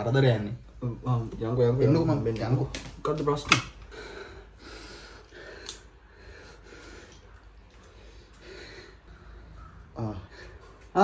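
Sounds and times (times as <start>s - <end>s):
man breathing softly: 3.9s - 10.8s.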